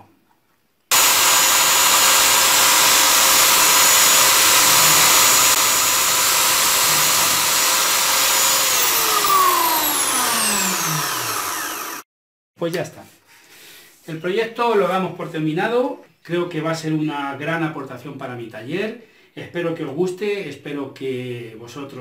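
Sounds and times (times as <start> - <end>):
wood sanded against disc: 0.9 - 11.7
electric drill motor whining: 0.9 - 12.1.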